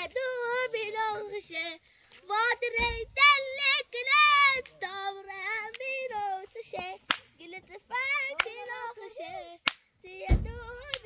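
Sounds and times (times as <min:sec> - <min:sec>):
child singing: 0:00.0 - 0:11.0.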